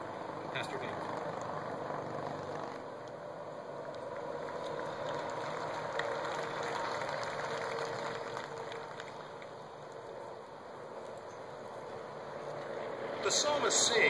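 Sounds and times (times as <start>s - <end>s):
faint steady hum: 0.0s - 14.0s
large crowd ambience: 4.0s - 14.0s.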